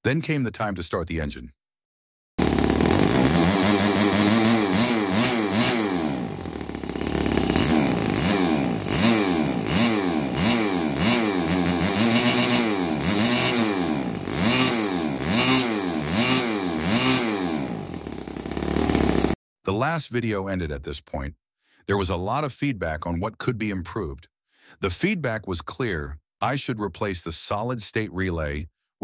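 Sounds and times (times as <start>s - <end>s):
model engine revving: 2.4s - 19.4s.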